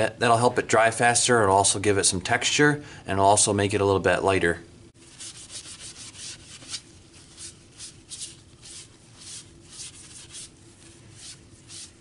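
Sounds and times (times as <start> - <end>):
tissue rubbing on damp paper: 5.0 - 12.0.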